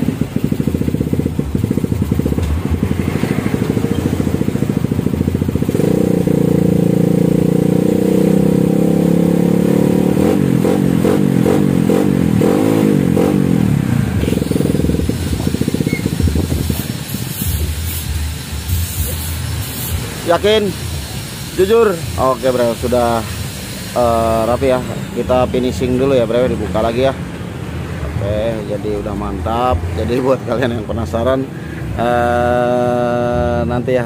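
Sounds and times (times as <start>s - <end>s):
motorcycle engine revving: 0.0s - 34.0s.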